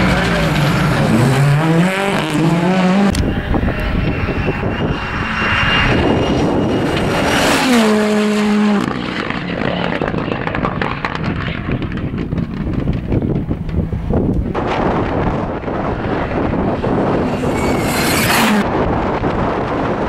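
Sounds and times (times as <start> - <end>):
rally car engines revving: 0.0 - 20.0
engine crackles: 6.3 - 19.8.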